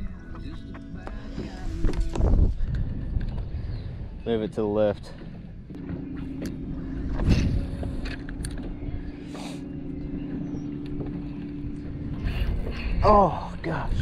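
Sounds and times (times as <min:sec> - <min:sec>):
wind: 0:00.0 - 0:14.0
water noise: 0:04.8 - 0:14.0.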